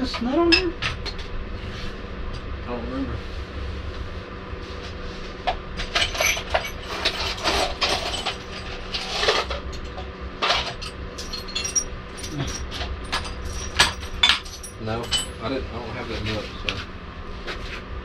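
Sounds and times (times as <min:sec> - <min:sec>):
steady low hum: 0:00.0 - 0:18.0
metallic clinks of nuts and bolts: 0:05.9 - 0:09.4, 0:10.4 - 0:15.5.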